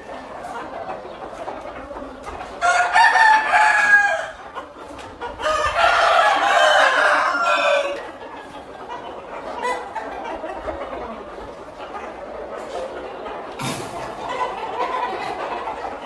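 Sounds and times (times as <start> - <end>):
roosters crowing: 2.6 - 4.6, 5.4 - 8.3.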